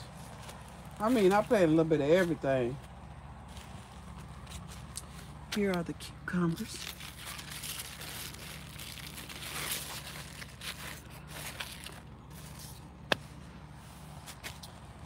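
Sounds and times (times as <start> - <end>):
leaves rustling: 6.3 - 15.0.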